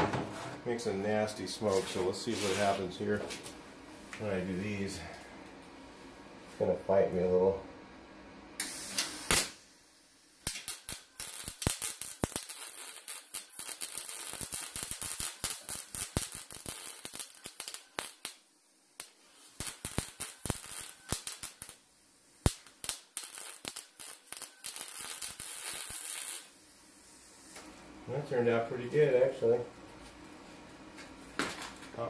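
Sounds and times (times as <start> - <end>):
welder crackling and spitting: 8.6 - 9.7, 10.4 - 26.6.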